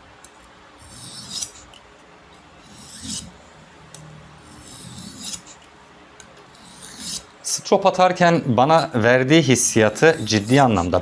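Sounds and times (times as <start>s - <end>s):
knife scraping on whetstone: 0.8s - 1.7s, 2.6s - 3.3s, 4.4s - 5.7s, 6.5s - 7.3s, 9.9s - 10.7s.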